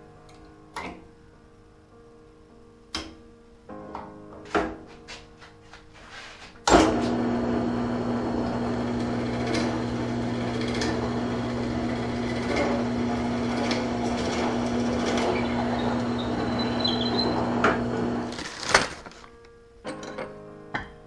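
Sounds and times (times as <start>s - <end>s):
drill press boring into wood: 6.7s - 18.4s.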